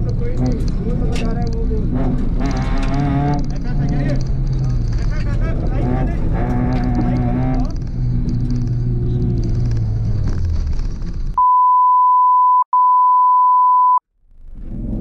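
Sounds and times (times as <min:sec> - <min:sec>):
censor bleep: 0:11.4 - 0:14.0.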